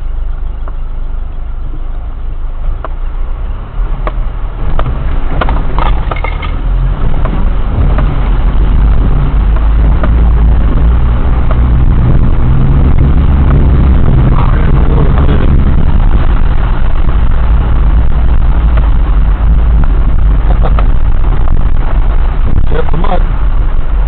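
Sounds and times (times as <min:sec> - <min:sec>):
vehicle engine crawling: 0:00.0 - 0:24.0
knocks and clunks: 0:04.0 - 0:12.2.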